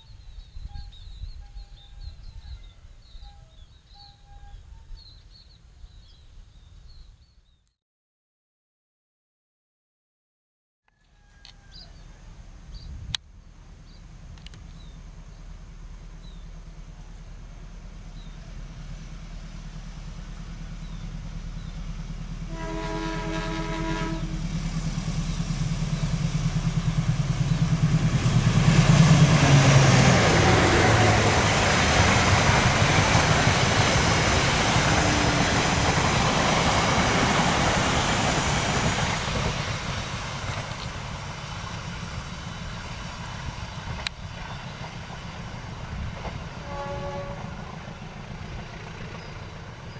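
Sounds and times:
diesel locomotive engine rumbling: 0.0s - 7.4s, 11.1s - 49.9s
train wheels on rails: 11.1s - 49.9s
train horn blast: 22.5s - 24.6s, 29.0s - 36.0s, 46.6s - 47.9s.

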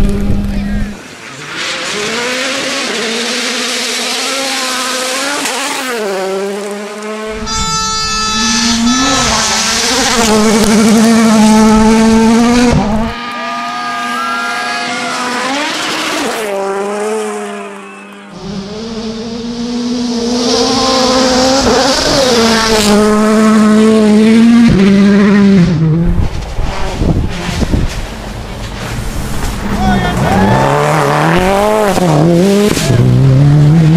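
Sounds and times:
rally car engines at high revs: 0.0s - 33.9s.

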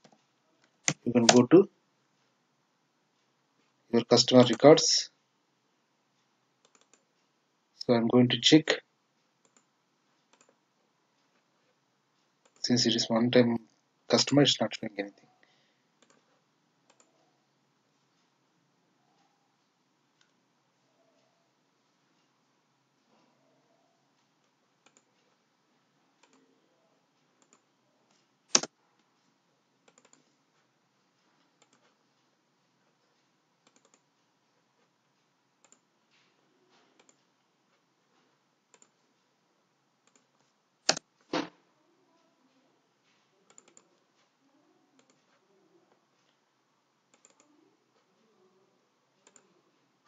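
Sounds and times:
keyboard and mouse clicks: 0.0s - 1.6s, 6.6s - 7.1s, 9.4s - 10.6s, 16.9s - 17.2s, 28.5s - 28.8s, 29.8s - 30.3s, 33.6s - 34.0s, 35.6s - 35.8s, 38.7s - 39.0s, 43.5s - 43.9s, 47.1s - 47.6s, 49.2s - 49.5s.

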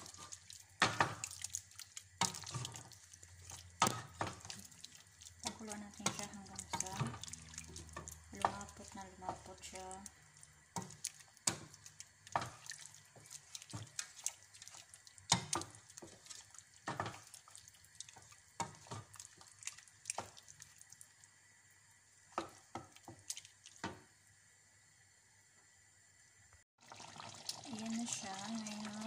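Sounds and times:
wooden spoon stirring stew: 0.0s - 21.2s, 22.2s - 24.1s.

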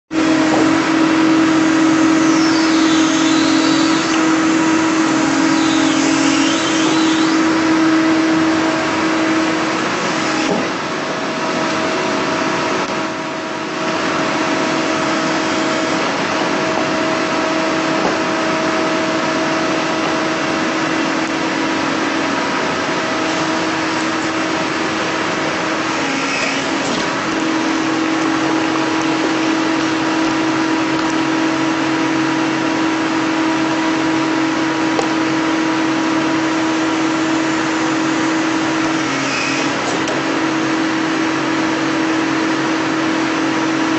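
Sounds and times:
excavator engine under load: 0.1s - 43.9s
steady hydraulic whine: 0.1s - 43.9s.

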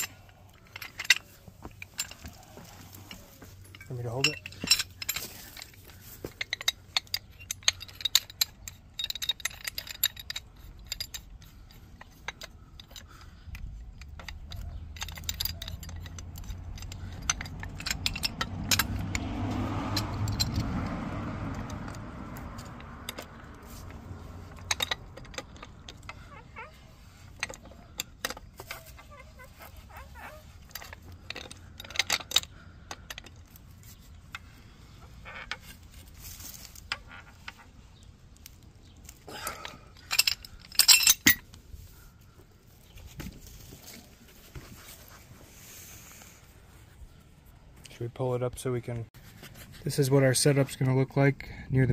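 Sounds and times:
pipe wrenches clinking on metal pipe: 0.0s - 37.7s, 38.4s - 41.9s.

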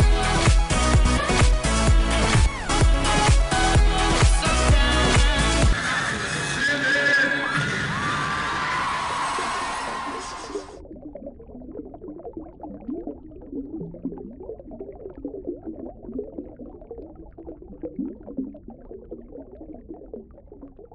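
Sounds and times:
music: 0.0s - 6.8s
underwater bubbling and gurgling: 9.9s - 20.9s.

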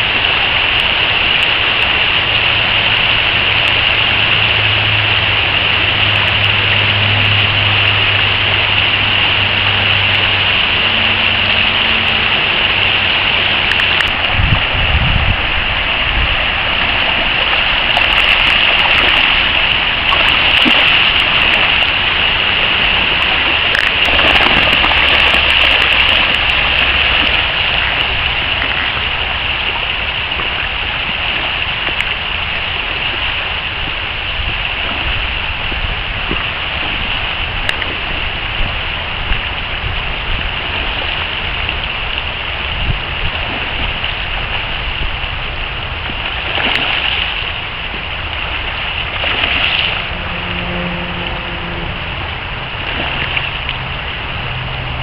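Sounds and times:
river water rushing over rocks: 0.0s - 55.0s
brief low rumble: 49.6s - 53.9s.

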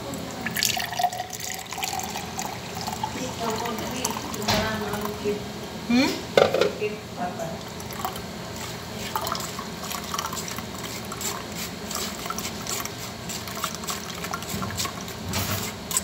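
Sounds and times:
juice dripping into glass: 0.3s - 5.1s, 7.6s - 8.3s, 9.1s - 11.3s.

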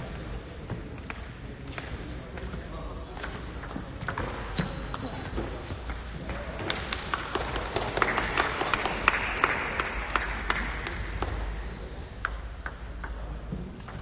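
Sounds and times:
table tennis balls clicking: 12.2s - 13.2s.

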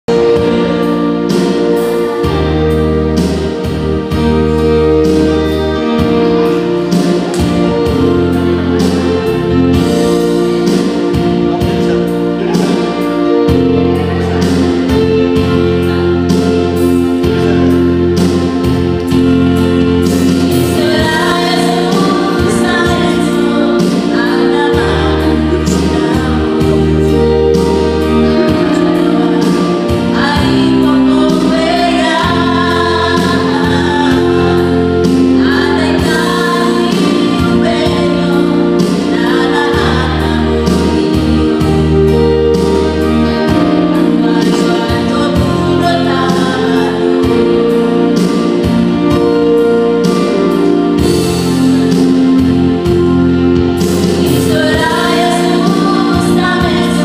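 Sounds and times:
keyboard chords with drum beat: 0.0s - 57.0s
women singing: 20.7s - 27.1s, 28.4s - 34.8s, 35.4s - 41.7s, 44.2s - 47.3s, 54.1s - 57.0s.

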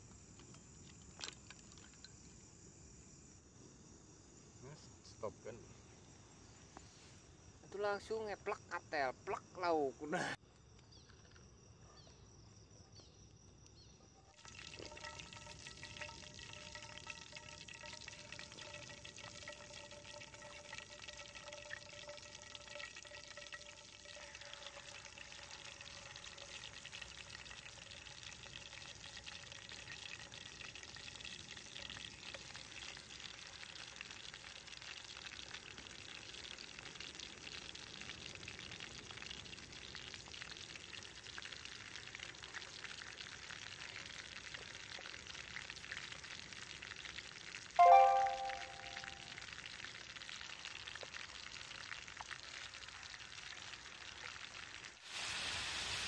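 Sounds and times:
food sizzling in hot oil: 14.3s - 56.0s
steady high tones: 47.8s - 49.2s.

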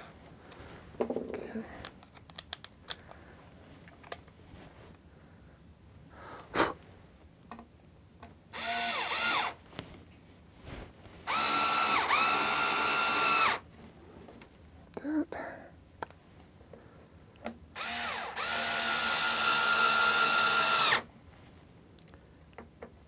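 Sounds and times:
cordless drill running: 8.6s - 9.6s, 11.3s - 13.6s, 17.8s - 21.1s.

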